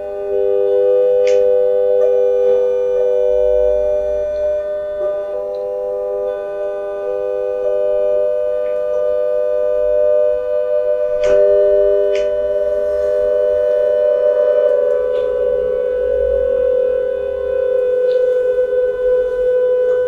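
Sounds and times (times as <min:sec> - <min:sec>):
sine tone chord from phones: 0:00.0 - 0:20.0.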